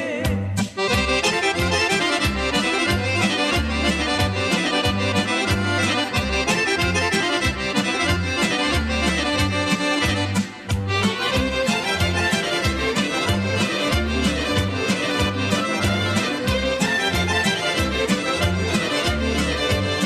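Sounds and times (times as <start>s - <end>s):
pulsing bass line: 0.3s - 20.0s
button accordion fast note runs: 0.8s - 20.0s.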